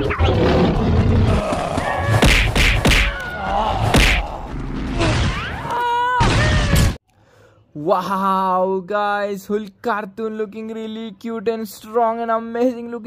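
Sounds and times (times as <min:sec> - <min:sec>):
heavy thwacks and thuds: 0:02.1 - 0:03.2, 0:03.8 - 0:04.4.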